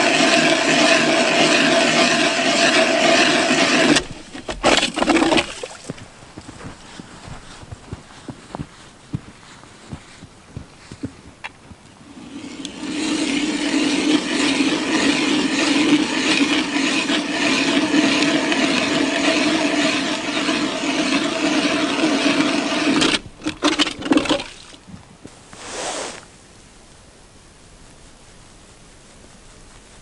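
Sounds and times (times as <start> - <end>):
ice auger motor humming: 0.0 - 8.6, 12.0 - 24.7.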